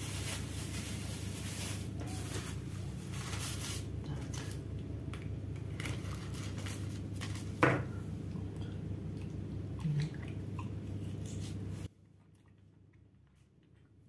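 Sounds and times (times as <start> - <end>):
food rustling and clicks: 1.7 - 7.6.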